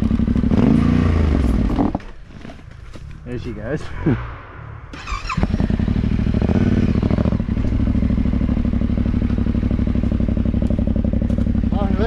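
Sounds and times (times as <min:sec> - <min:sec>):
dirt bike engine running: 0:00.0 - 0:02.1, 0:05.0 - 0:12.0.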